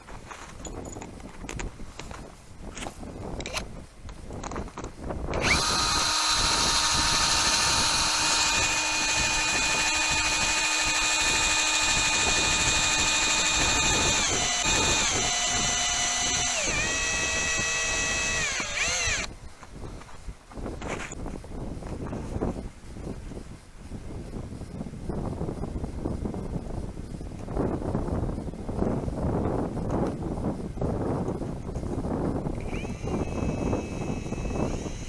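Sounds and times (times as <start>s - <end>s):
cordless drill motor whine: 5.3s - 19.3s, 32.5s - 35.0s.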